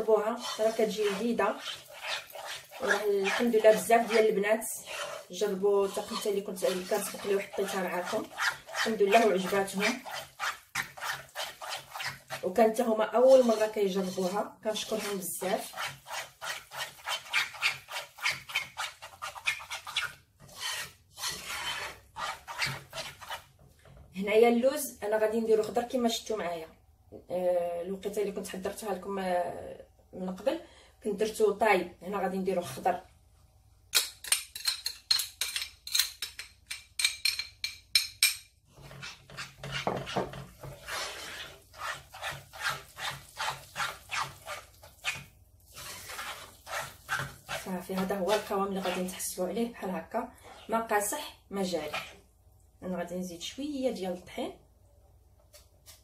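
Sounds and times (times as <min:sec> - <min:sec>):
spoon scraping thick mixture in pot: 0:00.0 - 0:24.1, 0:32.4 - 0:33.0, 0:38.7 - 0:52.2.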